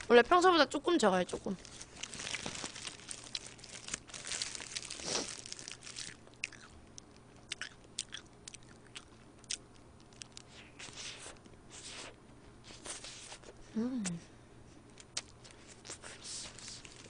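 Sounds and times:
biting and chewing burger: 1.7s - 12.1s.

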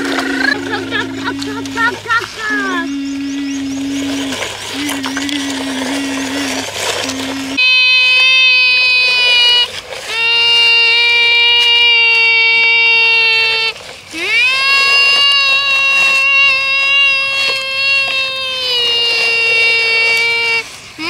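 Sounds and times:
low electronic tone: 0.0s - 9.7s
high buzzing tone: 0.0s - 11.0s.

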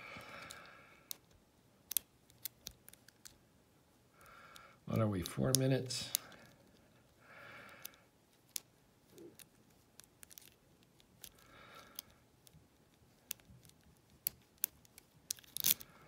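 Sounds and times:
lock pick metallic clicks: 14.2s - 15.9s.

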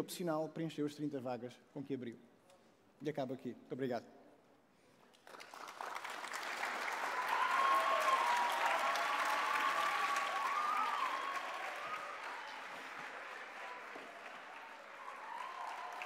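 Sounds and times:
audience applause: 5.2s - 16.0s.

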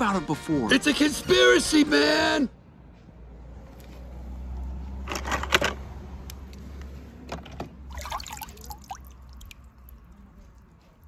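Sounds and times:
water splashing in plastic tub: 7.8s - 11.0s.

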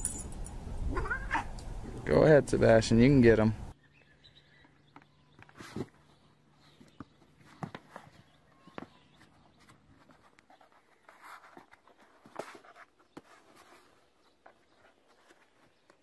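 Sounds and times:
paws scratching on cardboard: 5.4s - 16.0s.

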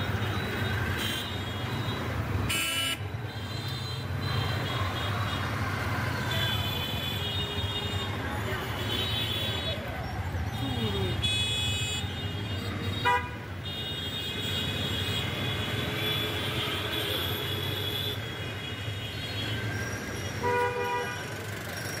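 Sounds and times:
vehicle horns tooting: 0.2s - 5.6s, 11.1s - 19.6s, 20.3s - 21.4s.

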